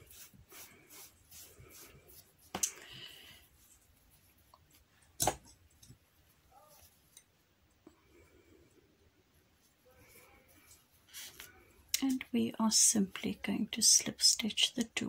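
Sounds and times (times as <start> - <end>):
yarn handling: 0.0 - 8.5, 9.3 - 12.4.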